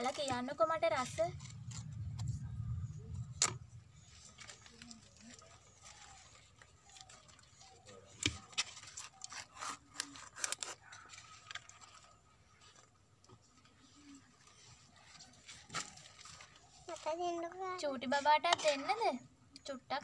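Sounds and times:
banana leaf rustling: 3.8 - 12.0.

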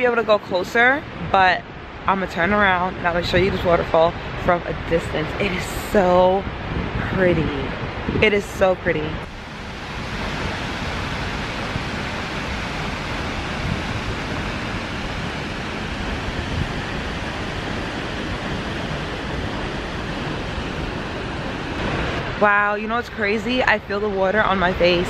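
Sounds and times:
waterfall rushing: 9.2 - 22.9.

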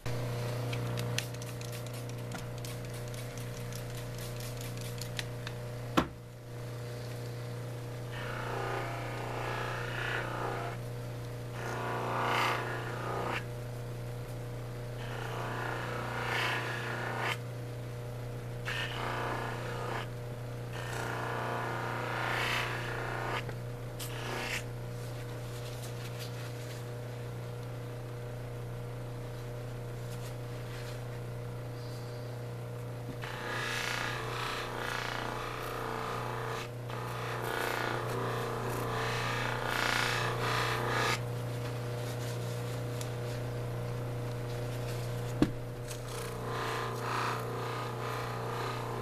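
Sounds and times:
stone rubbing on spinning wheel: 1.2 - 5.3, 8.1 - 10.8, 11.5 - 13.5, 15.0 - 17.4, 18.7 - 20.1, 20.8 - 23.5, 24.1 - 24.7, 33.2 - 41.2, 45.9 - 49.0.

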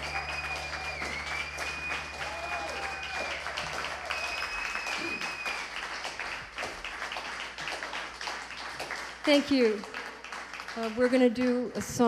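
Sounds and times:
high whistle from crowd: 0.0 - 5.8
audience applauding: 0.0 - 11.8.

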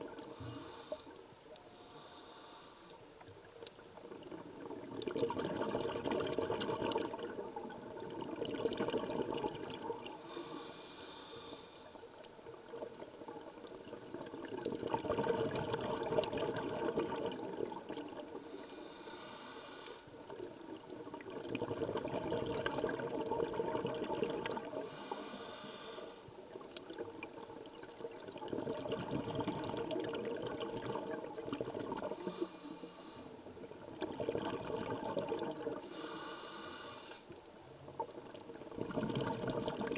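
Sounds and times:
diver inhaling through regulator: 0.2 - 3.0, 10.1 - 12.1, 18.3 - 20.2, 24.6 - 26.4, 31.9 - 37.3
exhaled bubbles rushing: 4.1 - 10.2, 12.6 - 18.4, 20.6 - 24.8, 26.8 - 32.3, 33.6 - 35.9, 37.9 - 39.9.

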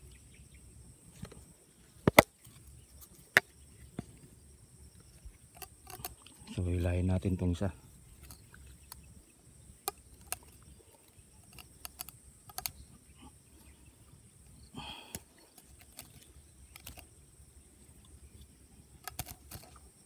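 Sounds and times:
faint irregular clicks: 5.0 - 6.4, 8.1 - 9.2, 9.8 - 13.1, 14.4 - 17.2, 18.0 - 20.0.

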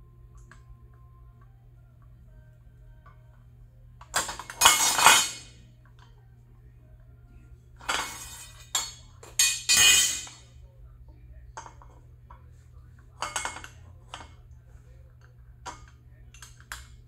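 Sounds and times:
steel tools clanking on metal: 4.1 - 5.5, 7.8 - 10.5, 13.2 - 14.4.

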